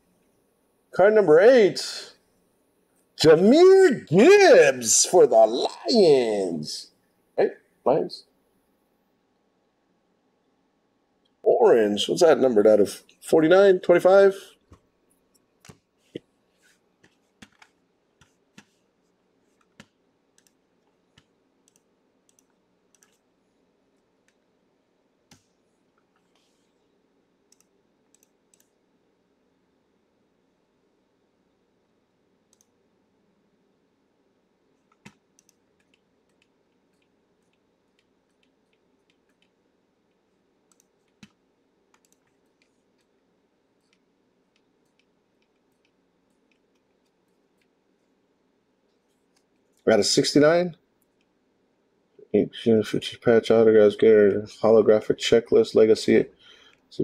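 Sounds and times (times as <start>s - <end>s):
computer mouse clicks: 17.0s - 18.8s, 19.5s - 23.3s, 25.3s - 26.8s, 27.5s - 28.8s, 32.5s - 32.8s, 34.8s - 43.2s, 43.8s - 47.8s.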